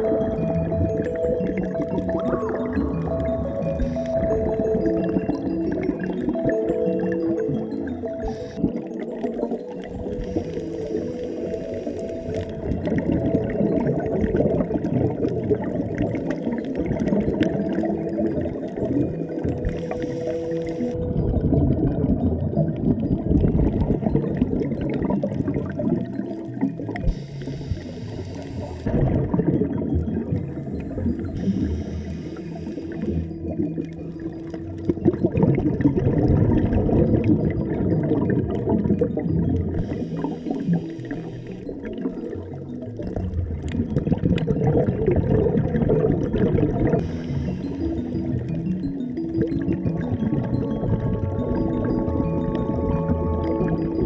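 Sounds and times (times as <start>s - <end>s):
underwater rumble with crackling: 0.0s - 54.0s.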